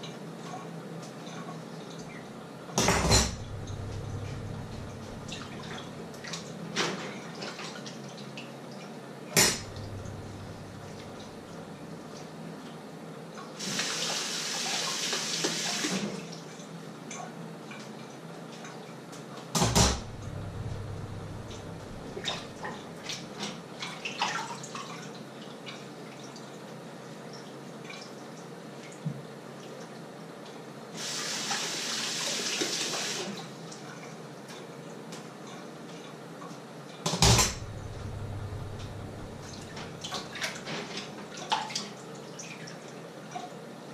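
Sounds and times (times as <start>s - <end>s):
dishes and pans clinking: 2.8s - 3.7s
tap running into sink: 9.4s - 11.5s, 19.6s - 23.2s
sharp knocks: 19.6s - 22.7s.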